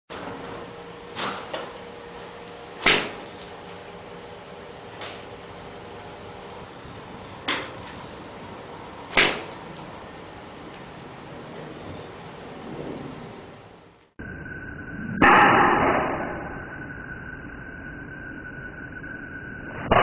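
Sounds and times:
steady high-pitched tone: 0.1 - 20.0
golf club striking ball: 2.8 - 3.4, 7.5 - 8.0.

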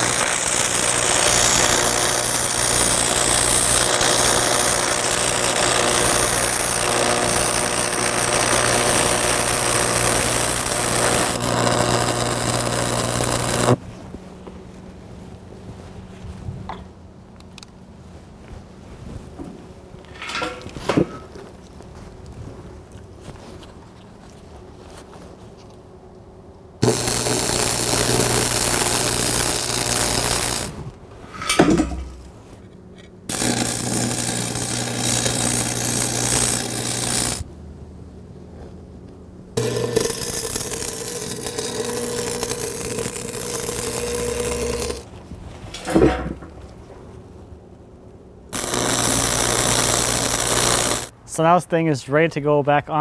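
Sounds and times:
welding arc crackle and hiss: 0.0 - 13.8, 26.8 - 32.4, 33.3 - 37.5, 39.6 - 45.1, 48.6 - 51.1
low electrical hum: 0.0 - 53.0.

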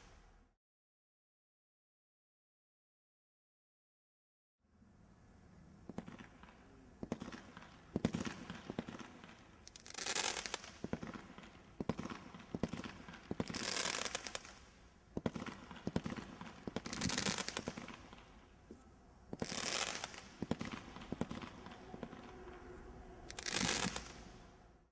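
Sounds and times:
firework cracks and pops: 5.8 - 18.5, 19.3 - 22.2, 23.3 - 24.4
roman candle shots hissing: 12.0 - 24.7.

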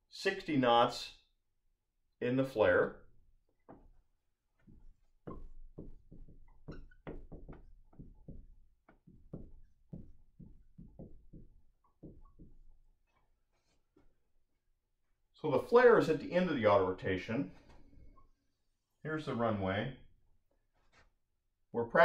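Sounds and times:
marker writing on a whiteboard: 4.6 - 14.0.

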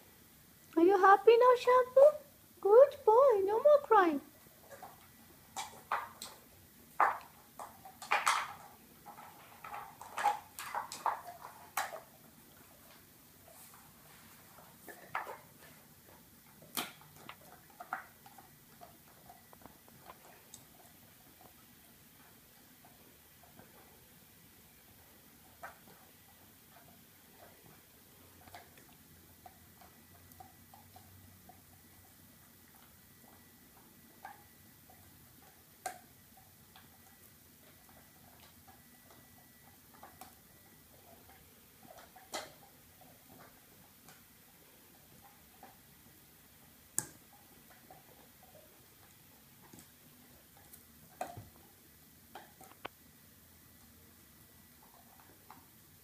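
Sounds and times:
dog crunching chew treat: 4.6 - 21.5.

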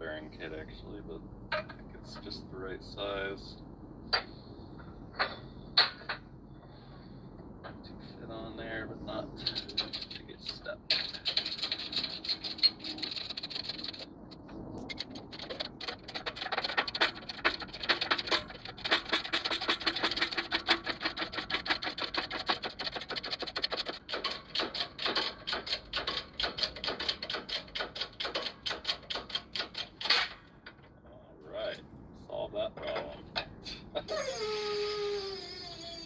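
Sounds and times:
jack pump mechanical clicks: 10.9 - 30.8.

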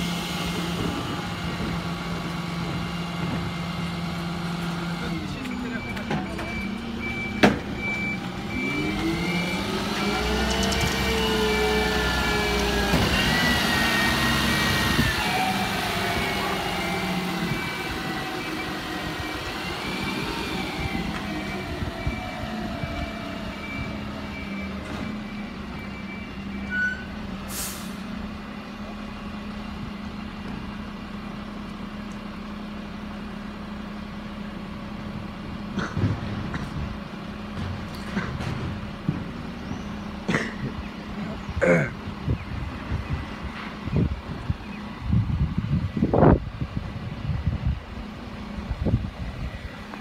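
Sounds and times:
reversing beeper: 5.1 - 27.9
air brake hiss: 27.5 - 28.1.

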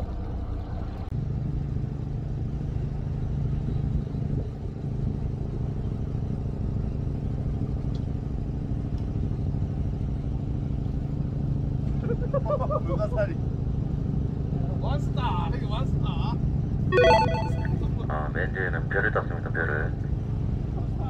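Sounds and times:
boat engine humming: 0.0 - 11.9.

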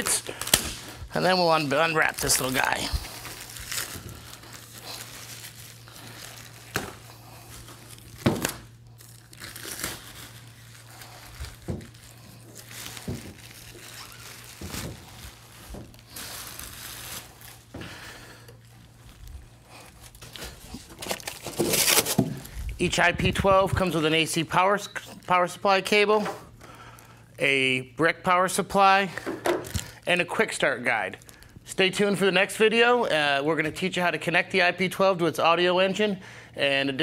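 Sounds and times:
plastic wrap crinkling: 0.0 - 25.6, 29.6 - 31.7.

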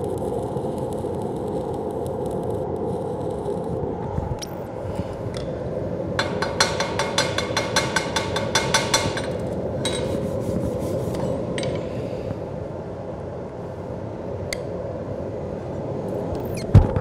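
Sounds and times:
steady hum: 0.0 - 17.0
hammer striking metal: 6.2 - 10.1.

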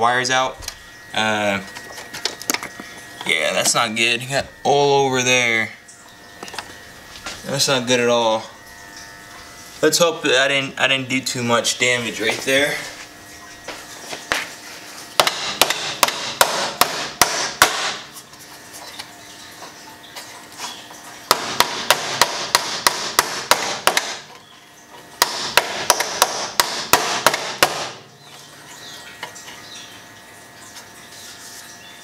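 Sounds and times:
hammer striking metal: 15.2 - 18.0.

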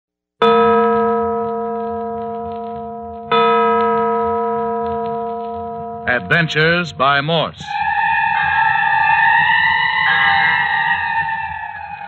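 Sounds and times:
church bell tolling: 0.4 - 9.0.

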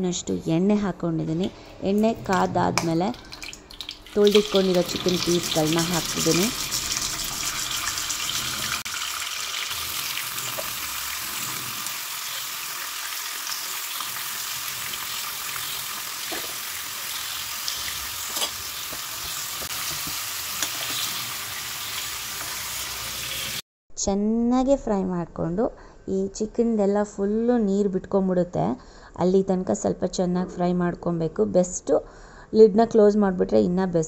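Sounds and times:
chicken sizzling in hot oil: 3.4 - 23.6
spoon knocking pan: 18.2 - 21.1.

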